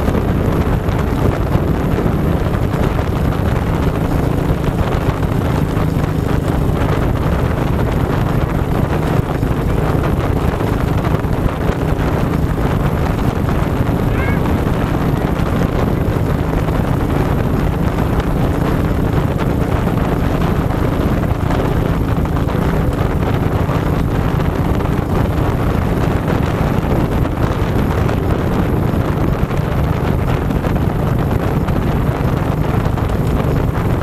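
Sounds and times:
quad engine running: 0.0s - 34.0s
wind noise on microphone: 0.0s - 34.0s.

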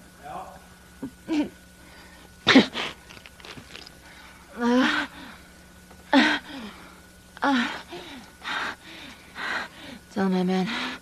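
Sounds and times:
woman groaning in pain: 4.6s - 5.2s, 6.1s - 6.7s.

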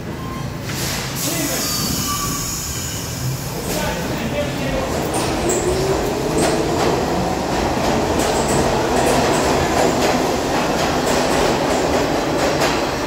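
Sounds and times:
subway train wheels clattering: 0.0s - 13.0s.

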